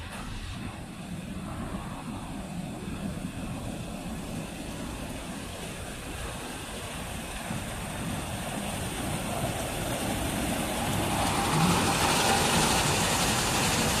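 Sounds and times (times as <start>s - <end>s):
car wash brushes and spray: 3.3s - 14.0s.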